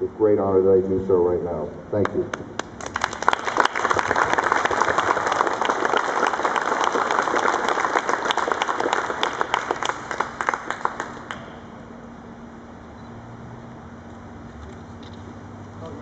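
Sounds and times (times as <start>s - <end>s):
applause: 2.0s - 11.7s.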